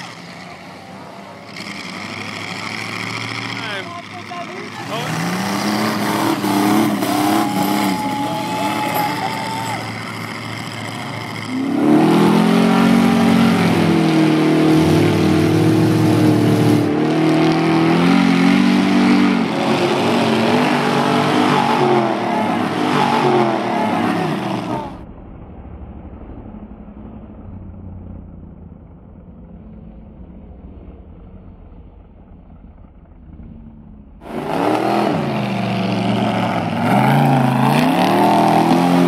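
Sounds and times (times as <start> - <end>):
truck engine revving: 0.0 - 25.0, 26.1 - 39.0
muffled low engine rumble: 24.8 - 34.2.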